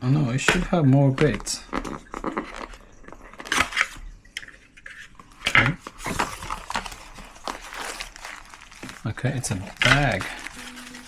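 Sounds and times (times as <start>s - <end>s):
cardboard box handling: 5.7s - 11.0s.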